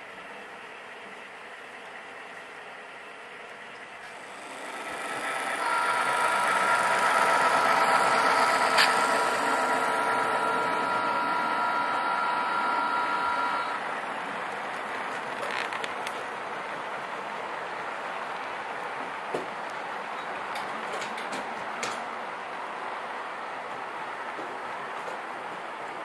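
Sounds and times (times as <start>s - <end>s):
engine rumble: 0.0s - 26.0s
model train horn chord: 5.5s - 13.8s.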